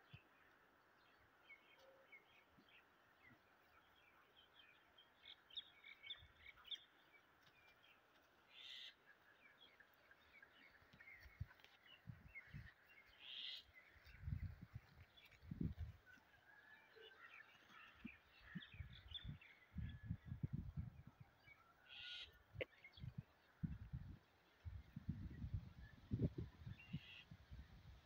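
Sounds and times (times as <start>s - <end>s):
small birds chirping: 0.0s - 15.9s, 17.0s - 27.4s.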